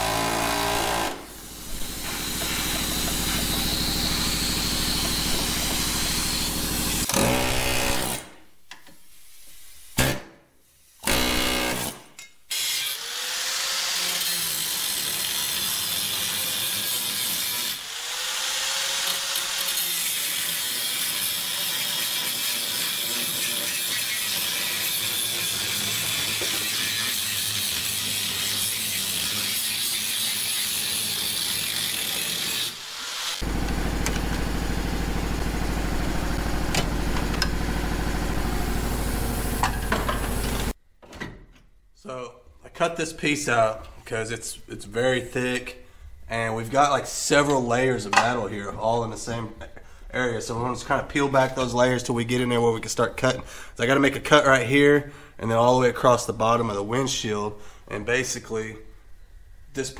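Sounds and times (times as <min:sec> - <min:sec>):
angle grinder cutting steel: 0:00.0 - 0:08.2, 0:12.5 - 0:34.4.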